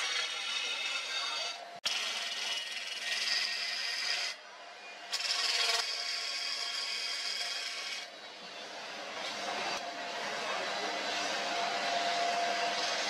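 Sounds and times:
chisel scraping on lathe wood: 0:00.0 - 0:04.4.

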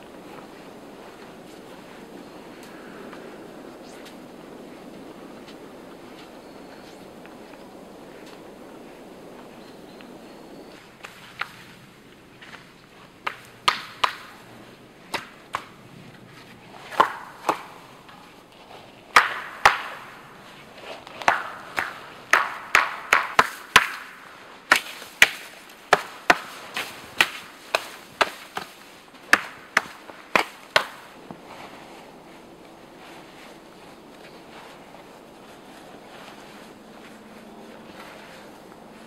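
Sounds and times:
blade chopping wooden pole: 0:13.2 - 0:14.4, 0:16.9 - 0:17.8, 0:19.1 - 0:20.2, 0:21.2 - 0:31.1.

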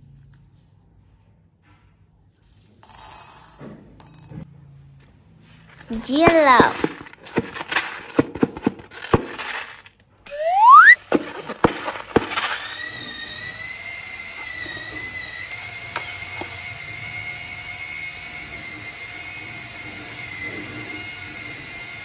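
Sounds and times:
high whistling squeal: 0:10.3 - 0:11.0
rising squeak: 0:10.3 - 0:11.0.

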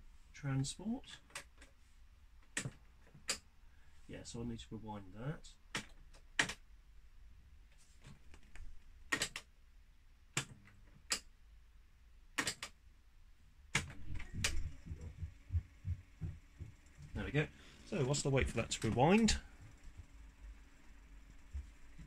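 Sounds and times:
cassette rewinding whir: 0:13.8 - 0:22.0.

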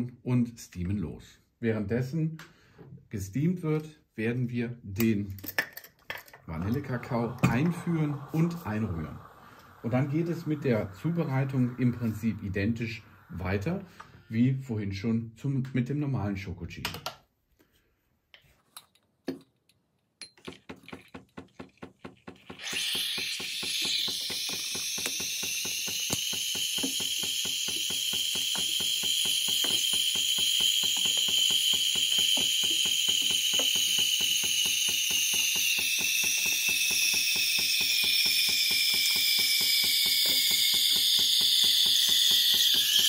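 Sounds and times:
loud steam hiss: 0:06.6 - 0:14.3
pump ticking rapidly: 0:21.8 - 0:43.0.

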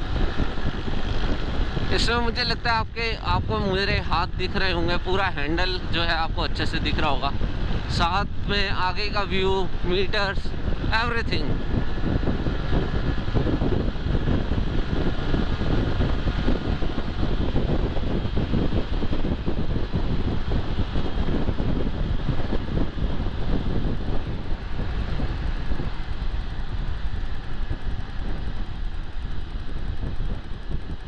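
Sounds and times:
wind on microphone: 0:00.0 - 0:31.0
motorcycle engine cruising: 0:09.4 - 0:31.0.

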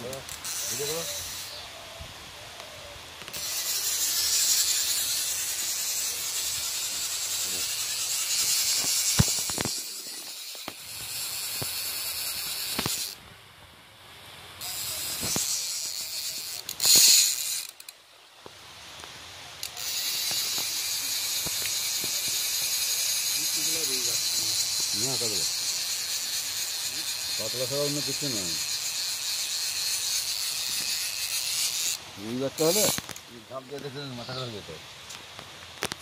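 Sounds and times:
fishing reel ratchet clicks: 0:00.0 - 0:01.6, 0:03.3 - 0:13.2, 0:14.6 - 0:18.0, 0:19.6 - 0:33.2.

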